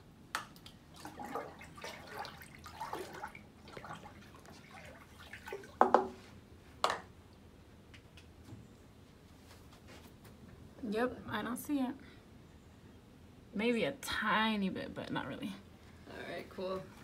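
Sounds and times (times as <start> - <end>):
milk trickling into water: 0.6 - 6.1.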